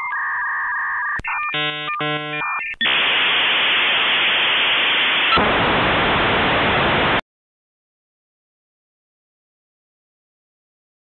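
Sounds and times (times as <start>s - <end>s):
modem chirping tones: 0.0s - 3.3s
loud static hiss: 1.6s - 7.2s.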